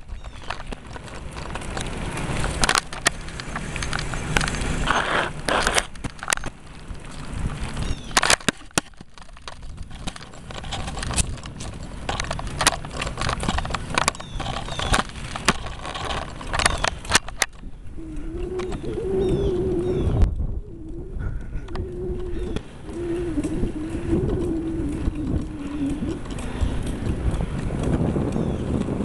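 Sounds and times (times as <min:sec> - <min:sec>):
birds chirping faintly: 0:00.0 - 0:01.6, 0:07.8 - 0:08.3, 0:12.2 - 0:27.0
camera clicks and rattles: 0:00.0 - 0:17.8
wind rumbling on microphone: 0:00.0 - 0:29.0
low wavering tone: 0:17.5 - 0:26.6.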